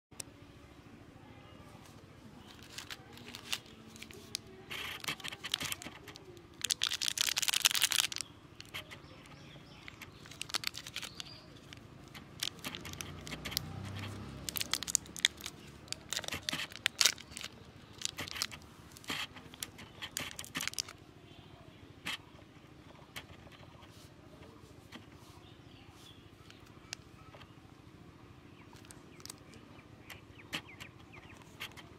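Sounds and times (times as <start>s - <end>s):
plastic wrapper crinkling: 2.4s - 9.0s, 9.6s - 21.0s, 28.8s - 29.4s.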